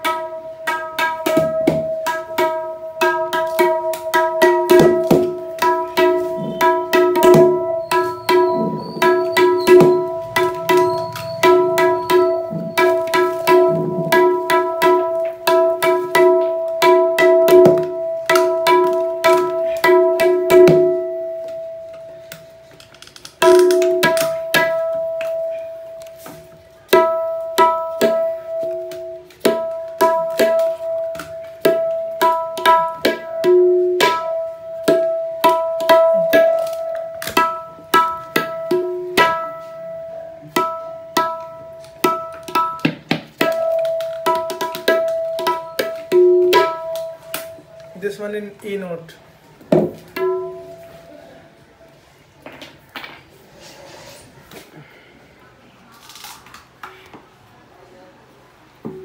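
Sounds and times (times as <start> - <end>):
drum head struck with fingers: 1.0 - 8.8, 9.4 - 21.6.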